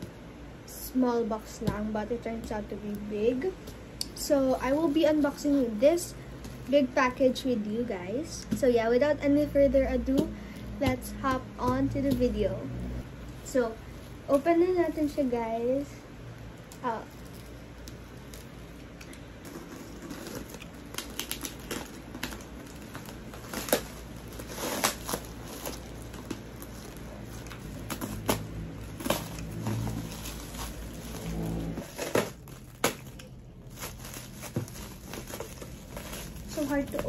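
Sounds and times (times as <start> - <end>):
plastic wrapping crinkling: 13.3 - 37.0.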